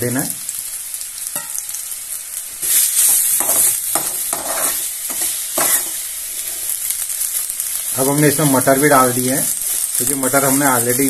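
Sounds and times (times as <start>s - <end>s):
onion sizzling in oil: 0.0s - 11.0s
spatula stirring and scraping: 2.6s - 7.8s.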